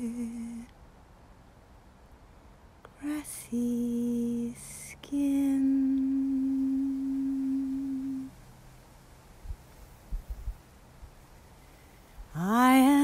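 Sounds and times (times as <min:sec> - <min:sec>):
woman singing unaccompanied: 0:00.0 - 0:00.7, 0:02.9 - 0:08.4, 0:12.3 - 0:13.0.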